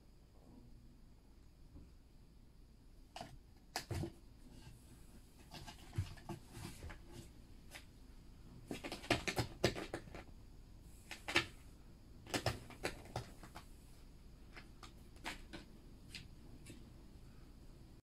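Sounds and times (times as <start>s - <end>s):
cat gnawing cardboard box: 3.1s - 4.7s, 5.3s - 7.8s, 8.6s - 10.3s, 11.0s - 11.6s, 12.2s - 13.7s, 14.5s - 16.8s.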